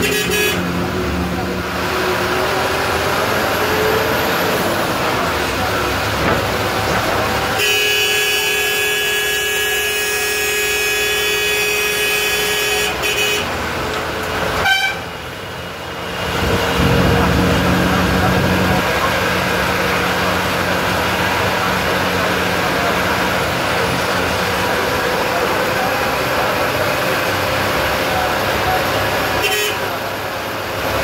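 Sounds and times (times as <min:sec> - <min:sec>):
bus horn: 0:00.0 - 0:01.0, 0:07.3 - 0:15.5, 0:27.9 - 0:30.2
bus diesel engine: 0:00.0 - 0:31.0
road noise: 0:00.0 - 0:31.0.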